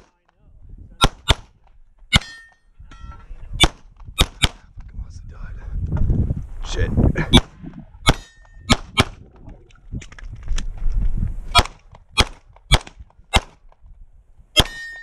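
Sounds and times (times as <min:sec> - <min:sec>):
pistol shots: 0:01.0 - 0:02.4, 0:03.6 - 0:04.6, 0:07.4 - 0:09.2, 0:11.6 - 0:13.6, 0:14.6 - 0:14.9.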